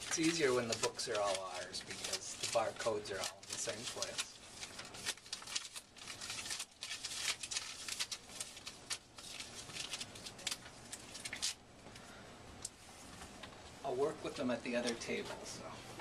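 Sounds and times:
receipt paper crinkling and tearing: 0.0s - 11.6s.

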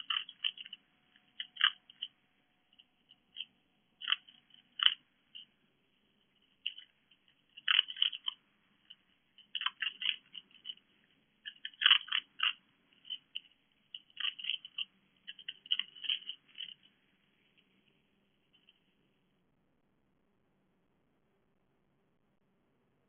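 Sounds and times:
fox crunching dry food: 0.0s - 17.9s.

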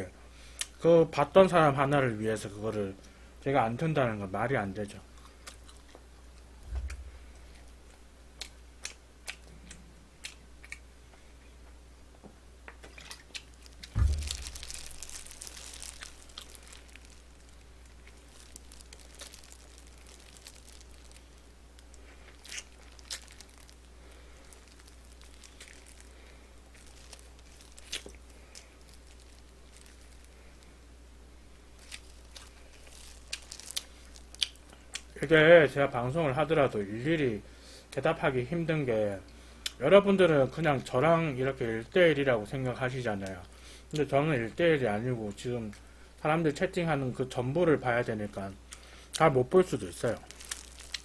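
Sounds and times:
steady low hum: 0.0s - 46.3s
chewing: 5.2s - 7.7s, 12.7s - 30.4s, 31.8s - 35.1s, 50.3s - 51.0s
plastic glove crinkling: 12.8s - 37.0s, 47.8s - 51.0s
dull thumps: 13.8s - 16.2s.

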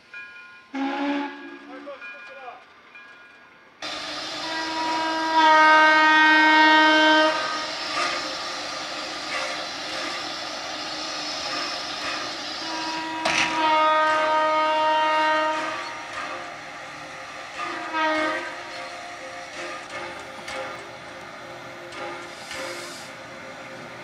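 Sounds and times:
steam locomotive whistle: 0.7s - 1.7s, 3.8s - 20.8s.

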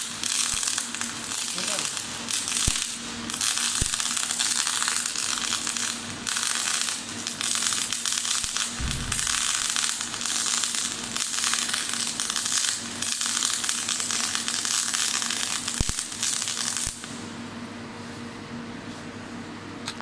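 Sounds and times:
welding arc crackle and hiss: 0.0s - 17.4s
low hum: 8.8s - 9.9s.

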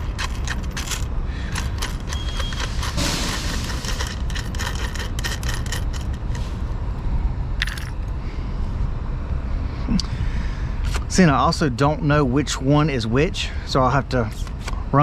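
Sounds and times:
small metal hardware clinking: 0.0s - 6.4s, 7.6s - 8.1s
low steady rumble: 0.0s - 15.0s.

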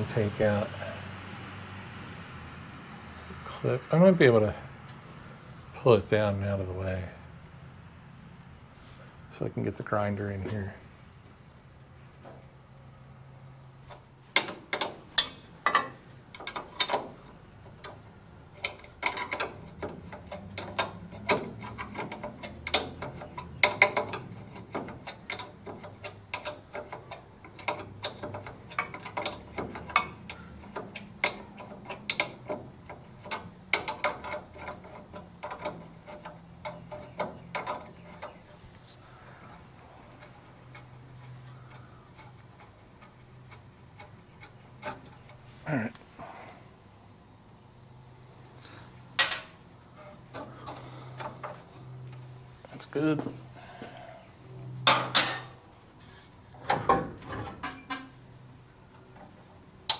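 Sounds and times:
hand tools clicking on metal: 13.9s - 38.4s.

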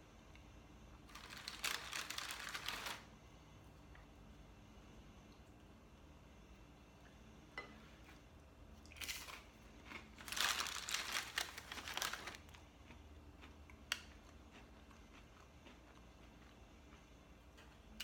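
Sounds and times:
plastic packaging crinkling: 1.1s - 3.1s, 10.0s - 12.6s.

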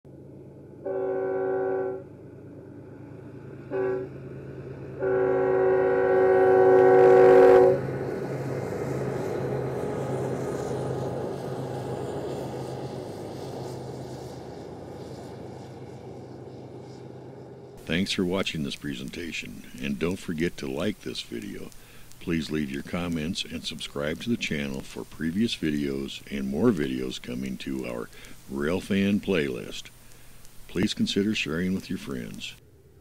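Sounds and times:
locomotive engine drone: 0.1s - 33.0s
locomotive air horn blasts: 0.8s - 2.1s, 3.7s - 4.1s, 5.0s - 7.9s
freight cars rumbling past: 2.0s - 18.4s.

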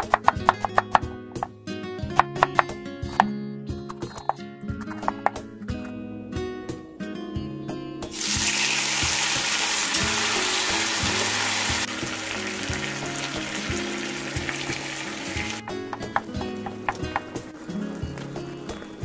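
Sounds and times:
soft background music: 0.0s - 19.0s
meat sizzling in a pan: 8.1s - 15.6s.

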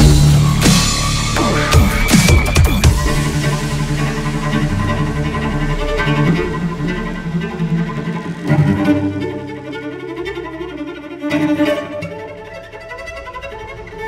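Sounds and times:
bowed cello sustained notes: 0.0s - 14.0s
electronic remix of cello music: 0.0s - 14.0s.

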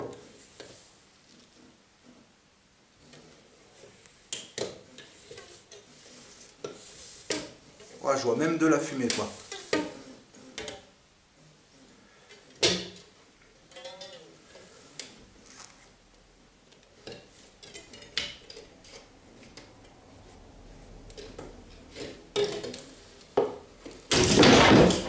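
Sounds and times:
wire scraping and squeaking: 3.0s - 10.9s, 13.6s - 16.0s, 17.0s - 20.0s.

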